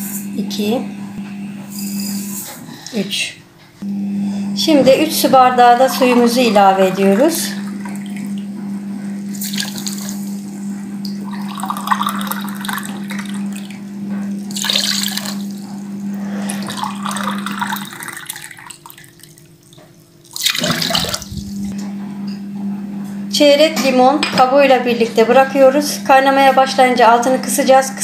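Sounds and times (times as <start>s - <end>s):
water pouring into metal pot: 9.3s - 10.4s, 11.3s - 13.6s, 14.5s - 15.6s, 16.5s - 19.4s.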